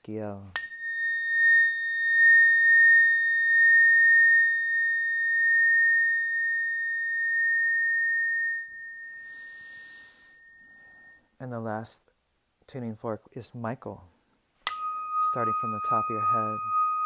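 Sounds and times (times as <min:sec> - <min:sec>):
tuning fork ringing: 0:00.6 - 0:11.3, 0:14.6 - 0:17.0.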